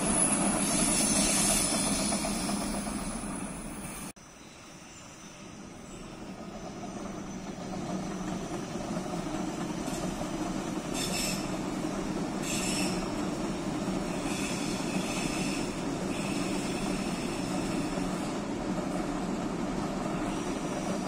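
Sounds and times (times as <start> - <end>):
thin high wheel squeal: 0.0 - 4.1, 10.9 - 11.6, 12.4 - 13.2, 14.0 - 18.3
train rumbling across a bridge: 0.0 - 21.0.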